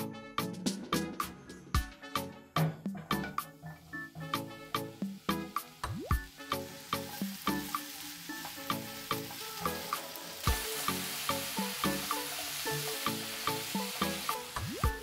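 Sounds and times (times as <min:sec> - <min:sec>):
light background music: 0:00.0 - 0:15.0
mushrooms sizzling in oil: 0:03.3 - 0:15.0.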